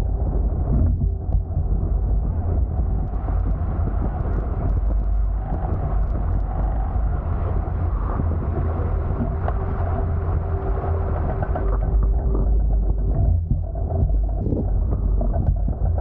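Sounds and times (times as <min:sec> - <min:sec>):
wind buffeting microphone: 0:00.0 - 0:16.0
water rushing along hulls: 0:02.3 - 0:12.7.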